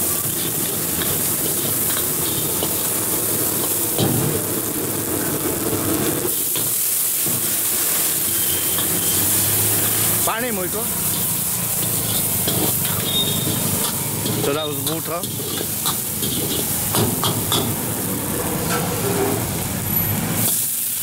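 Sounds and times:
water splashing into hot wok: 0.0 - 18.8
vegetables sizzling in hot oil: 0.0 - 21.0
metal ladle scraping a wok: 0.1 - 3.9, 6.2 - 10.2, 10.9 - 19.7.

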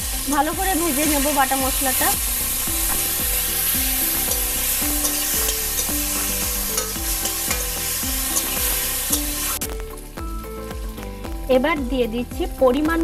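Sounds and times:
paste sizzling in hot oil: 0.0 - 11.2
faint background tune: 0.0 - 13.0
spatula scraping pan: 2.8 - 9.6.

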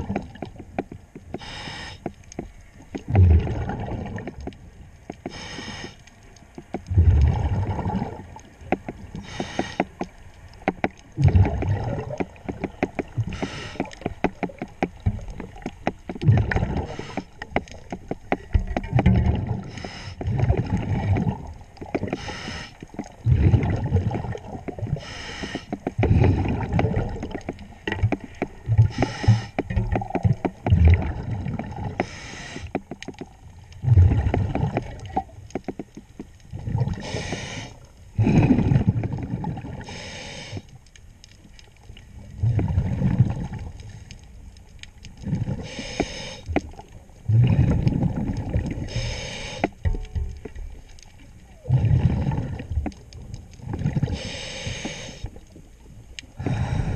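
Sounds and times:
exhaled bubbles rumbling: 0.0 - 1.6, 2.4 - 40.0, 41.4 - 45.9, 46.5 - 56.9
regulator hissing inhale: 1.4 - 2.2, 5.2 - 6.0, 9.2 - 9.9, 13.3 - 14.0, 19.7 - 20.2, 22.2 - 22.9, 25.0 - 25.8, 28.9 - 29.6, 32.0 - 32.7, 37.0 - 37.8, 39.8 - 40.7, 45.6 - 46.5, 48.8 - 49.8, 54.1 - 55.4, 56.4 - 56.9.

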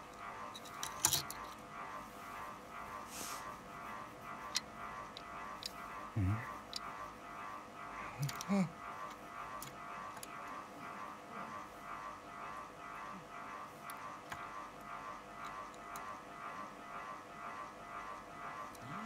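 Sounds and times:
old man grunting: 8.2 - 8.8.

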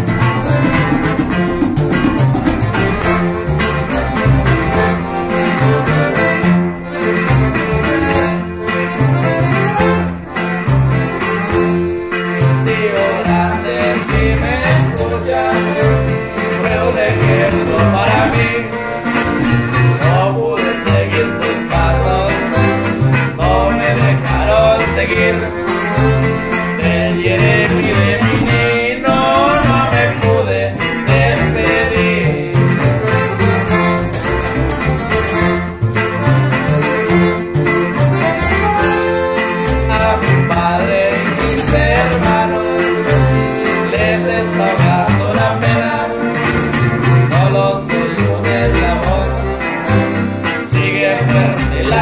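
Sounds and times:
button accordion melody: 0.0 - 52.0
plucked upright bass: 0.0 - 52.0
strummed guitar: 0.0 - 52.0.

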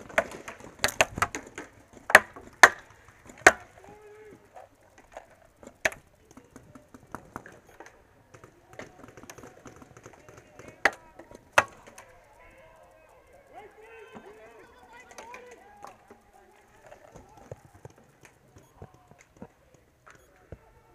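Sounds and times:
paintballs hitting plastic: 0.0 - 12.2
paintball markers shooting: 0.0 - 12.5.

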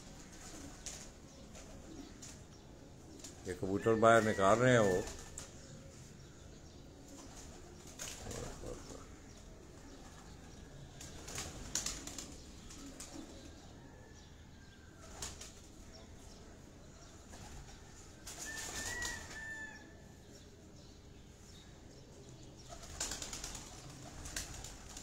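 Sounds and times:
pigeons flapping wings: 0.1 - 2.4, 4.2 - 5.5, 7.2 - 9.0, 11.0 - 13.5, 15.0 - 15.7, 17.3 - 19.4, 22.7 - 25.0.

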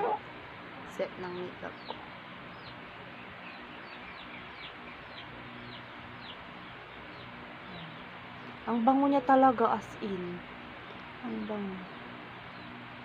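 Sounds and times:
faint bird chirps: 1.3 - 8.8.

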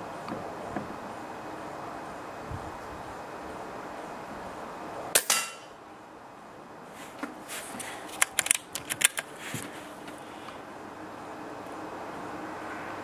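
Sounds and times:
metallic clicks of cocking lever: 8.2 - 9.3.

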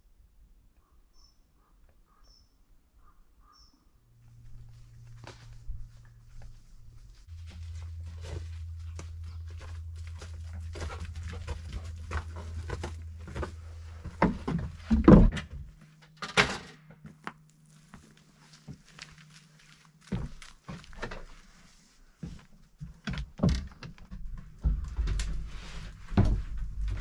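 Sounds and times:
low hum: 3.9 - 16.2
footsteps crunching on leaves: 17.5 - 21.7.

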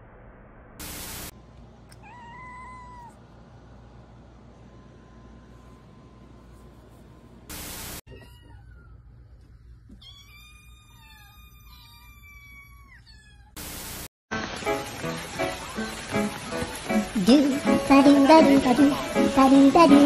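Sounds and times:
loud hiss: 0.8 - 1.3, 7.5 - 8.0, 13.6 - 14.1
kitten mewing: 1.9 - 3.2.

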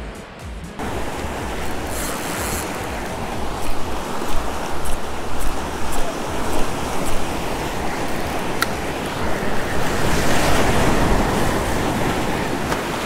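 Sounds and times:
surf washing over rocks: 0.8 - 13.0
wind on microphone: 0.8 - 13.0
fishing reel ticking: 1.0 - 9.1.

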